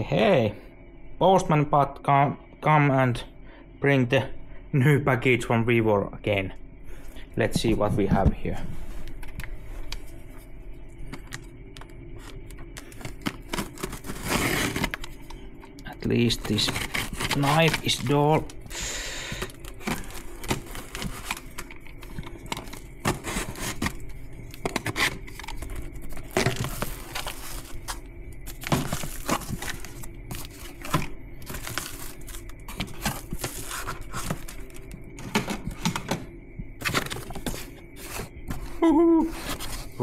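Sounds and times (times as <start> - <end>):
packing crinkling: 11.1 - 36.2, 36.8 - 40.0
cardboard package tearing: 13.2 - 15.2, 16.2 - 18.6, 19.4 - 24.0, 24.6 - 34.8.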